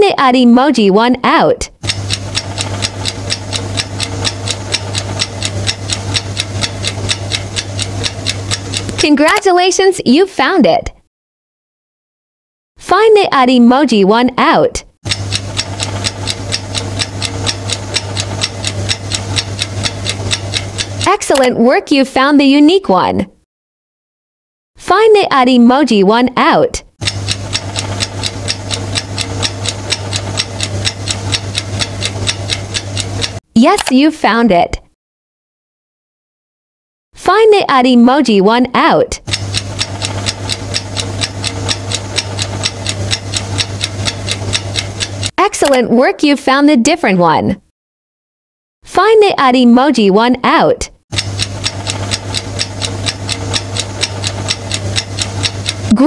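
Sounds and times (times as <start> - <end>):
fast clock ticking: 1.8 - 9.6, 15.1 - 21.6, 27.0 - 33.9, 39.2 - 45.8, 51.1 - 56.0
low steady hum: 27.0 - 34.0.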